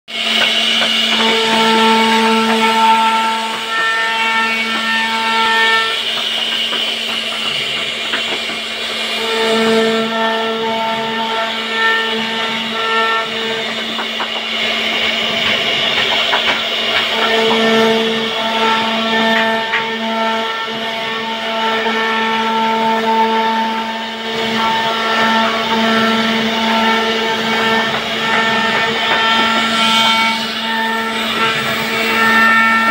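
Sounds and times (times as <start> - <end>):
router spindle whine: 0.1 - 32.9
bit cutting wood: 24.4 - 32.9.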